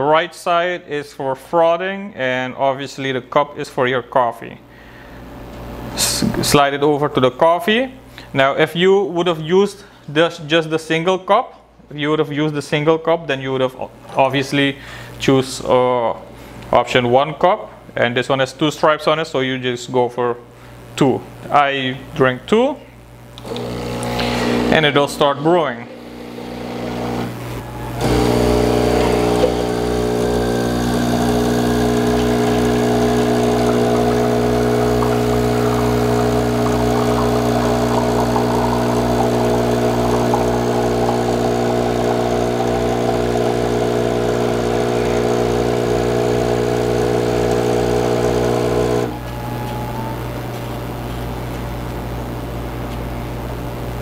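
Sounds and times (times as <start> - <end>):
espresso machine pump buzzing: 23.4 - 25.2, 25.9 - 50.4.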